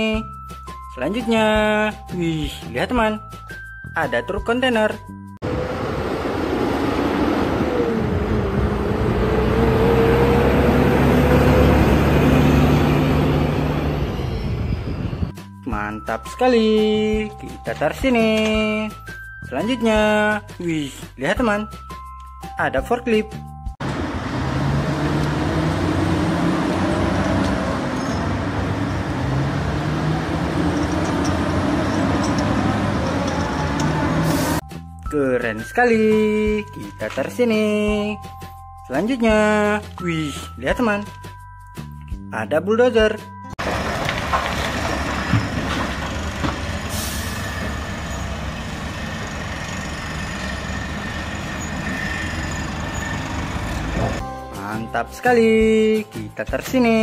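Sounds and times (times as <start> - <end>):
truck engine under load: 5.4 - 15.3, 23.8 - 34.6, 43.6 - 54.2.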